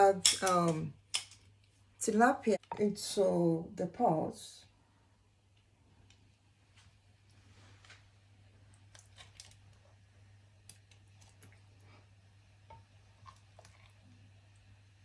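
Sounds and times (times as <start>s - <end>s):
low steady hum: 0.0s - 15.0s
soft wet sounds in broth: 4.6s - 15.0s.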